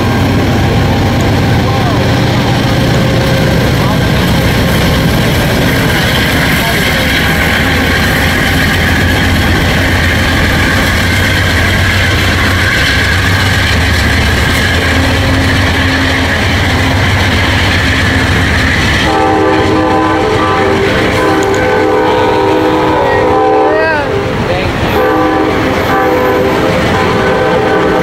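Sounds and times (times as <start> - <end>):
train wheels rumbling on rail: 0.0 - 28.0
train horn chord: 19.0 - 24.3, 24.9 - 28.0.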